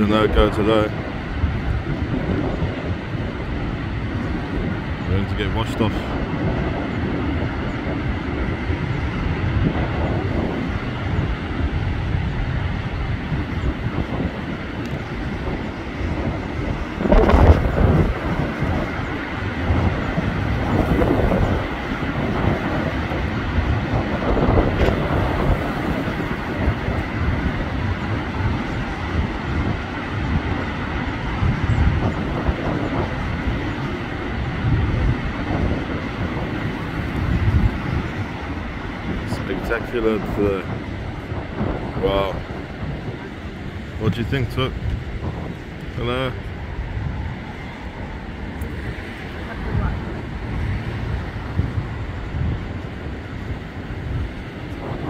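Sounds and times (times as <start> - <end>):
big waves breaking: 0.0 - 55.0
stormy sea roaring: 0.0 - 55.0
wind on microphone: 0.0 - 55.0.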